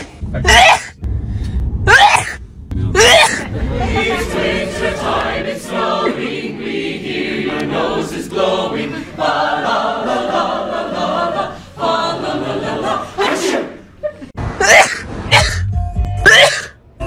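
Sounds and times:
mixed choir singing: 2.8s - 14.0s.

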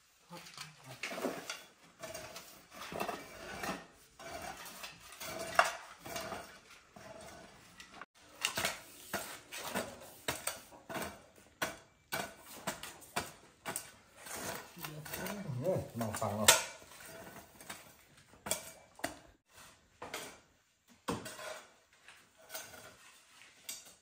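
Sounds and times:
metallic scraping and clinking: 0.3s - 11.4s, 12.1s - 19.2s, 21.2s - 24.0s.

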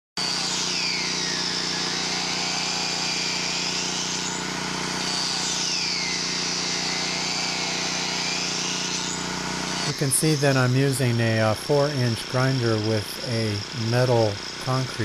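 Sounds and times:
angle grinder cutting pipe: 0.2s - 15.0s.

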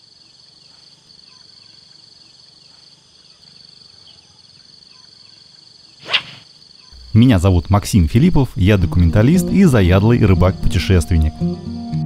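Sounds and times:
faint insect chirps: 0.0s - 10.4s
crickets trilling: 0.0s - 11.7s.

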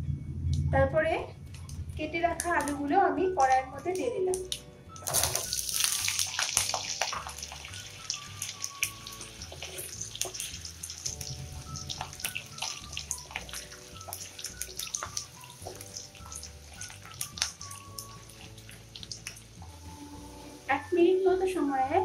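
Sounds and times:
potatoes sizzling in oil: 5.0s - 21.0s.

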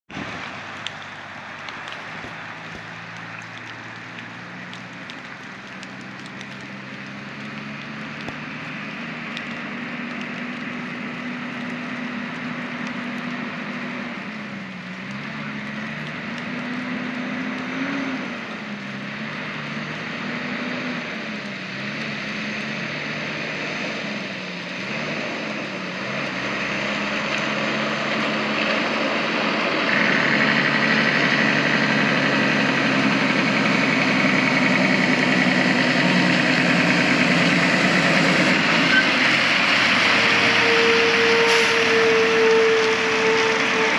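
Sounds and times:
truck diesel engine: 0.1s - 43.9s.

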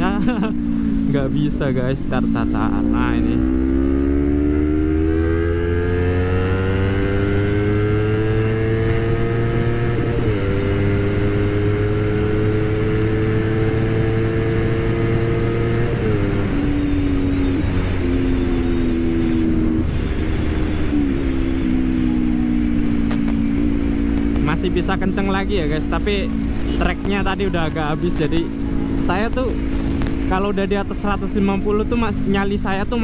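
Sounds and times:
motorcycle engine accelerating: 0.0s - 33.0s
wind rush: 14.4s - 31.3s.

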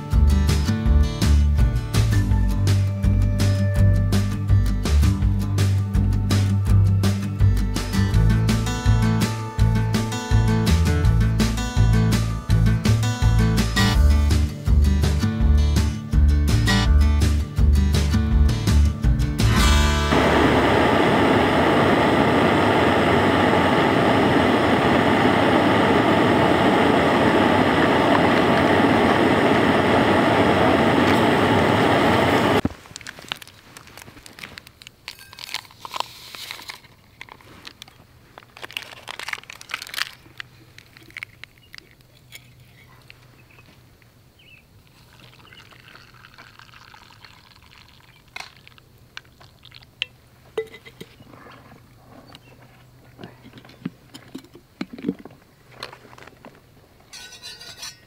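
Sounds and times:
background music: 0.0s - 20.8s
metal cups clinking: 35.1s - 35.9s, 50.0s - 51.2s, 57.1s - 58.0s
water pouring into a cup: 44.9s - 49.9s.

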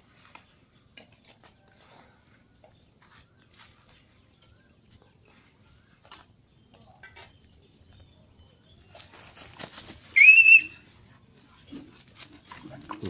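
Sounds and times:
rustling in dry leaves: 8.8s - 11.0s.

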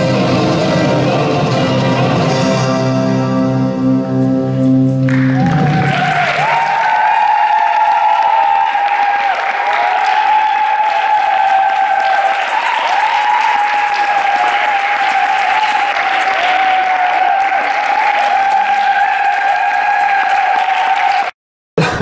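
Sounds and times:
audience applauding: 5.0s - 22.0s.

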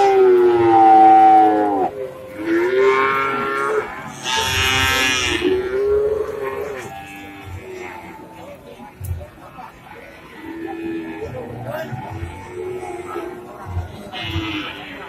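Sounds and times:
cows mooing: 0.0s - 8.4s, 10.3s - 15.0s.

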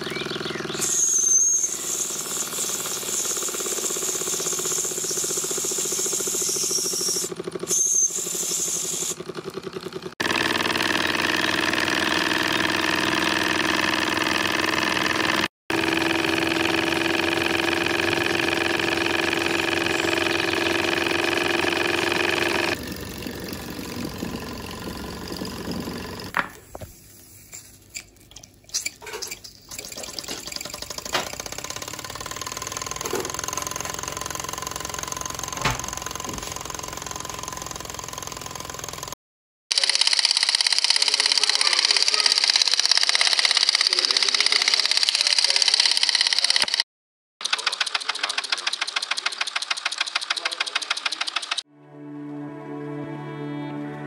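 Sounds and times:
steam hissing: 0.8s - 9.2s
toy steam engine beating: 1.9s - 9.2s, 29.7s - 46.8s, 47.4s - 51.6s
irregular engine clicks: 9.1s - 15.5s, 29.7s - 46.8s, 47.4s - 51.7s.

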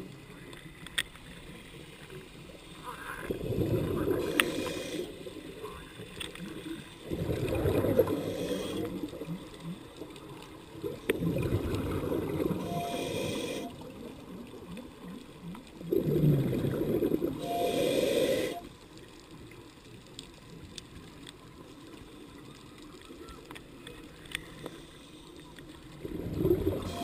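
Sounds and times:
faint underwater clicks: 0.0s - 27.0s
exhaled bubbles gurgling: 2.8s - 18.7s, 25.8s - 27.0s
scuba regulator inhale hiss: 4.1s - 5.4s, 7.8s - 9.2s, 12.5s - 13.9s, 17.4s - 18.7s.

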